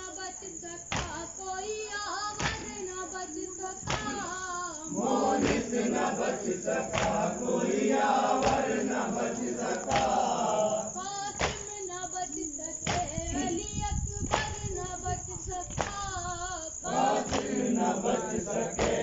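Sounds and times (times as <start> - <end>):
hand slapping chest: 0.9 - 1.2, 2.4 - 2.8, 3.8 - 4.3, 5.4 - 7.5, 8.3 - 10.3, 11.4 - 11.7, 12.8 - 13.2, 15.7 - 16.0, 17.0 - 18.2, 18.8 - 19.0
men chanting in chorus: 3.8 - 11.1, 13.3 - 13.6, 16.7 - 19.0.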